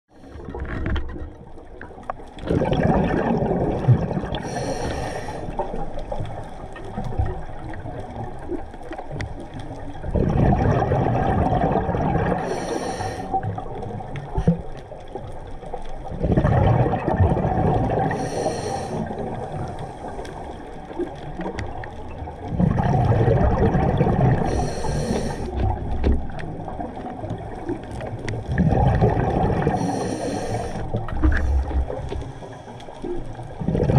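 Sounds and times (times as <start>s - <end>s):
diver exhaling bubbles: 2.4s - 5.9s, 10.0s - 14.7s, 16.1s - 20.4s, 22.4s - 27.1s, 28.4s - 33.9s
high regulator hiss: 24.5s - 25.5s.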